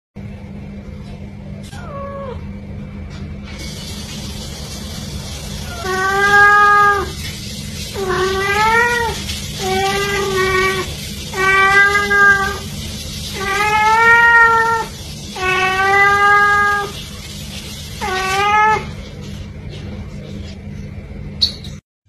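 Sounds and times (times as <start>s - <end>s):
cat meowing: 5.6s - 7.2s, 8.0s - 12.7s, 13.3s - 17.0s, 18.0s - 19.0s.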